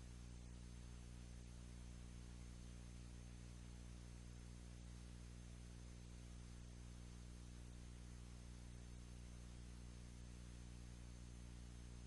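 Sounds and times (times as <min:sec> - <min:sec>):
faint hiss: 0:00.0 - 0:12.0.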